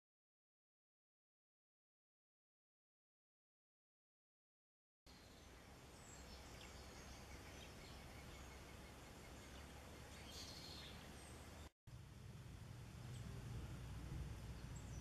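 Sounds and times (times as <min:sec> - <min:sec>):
distant bird chirps: 0:05.1 - 0:11.7, 0:12.7 - 0:15.0
steady low rumble: 0:11.9 - 0:15.0.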